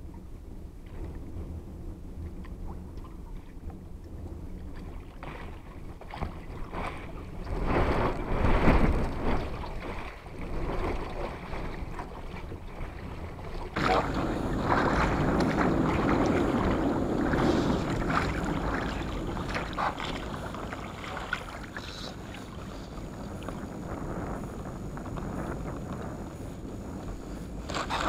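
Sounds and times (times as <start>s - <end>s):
water lapping against boat hull: 0.0s - 28.0s.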